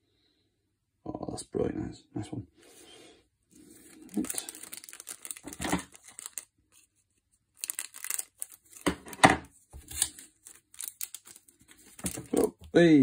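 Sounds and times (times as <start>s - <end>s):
wrapper crinkling and crackling: 3.6s - 12.8s.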